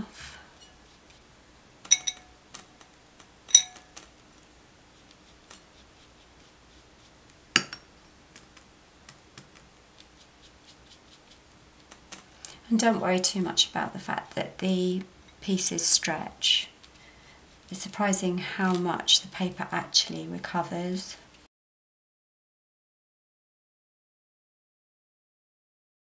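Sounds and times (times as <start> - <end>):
paintbrush clinking on ceramic plate: 1.9 - 2.4, 3.5 - 4.0, 7.6 - 8.2.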